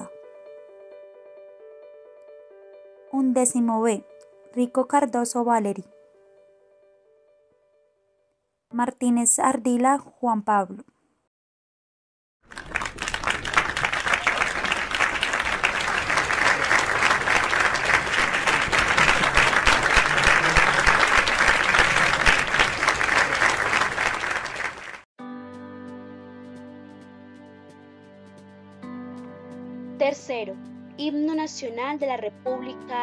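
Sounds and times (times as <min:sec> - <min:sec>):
soft background music: 0:00.0 - 0:07.9, 0:25.2 - 0:33.0
crowd applause: 0:12.5 - 0:25.0.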